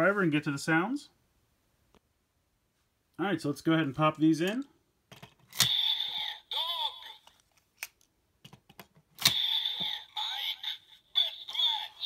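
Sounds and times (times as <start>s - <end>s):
toy parts snapping into slots: 4.5s - 5.9s, 7.8s - 10.0s
toy electronic voice and effects: 5.6s - 7.4s, 9.3s - 12.0s.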